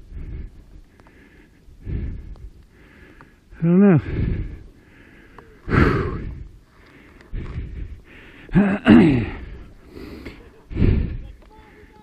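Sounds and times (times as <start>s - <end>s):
man gasping breaths: 0.0s - 12.0s
man strained grunt: 8.5s - 9.5s.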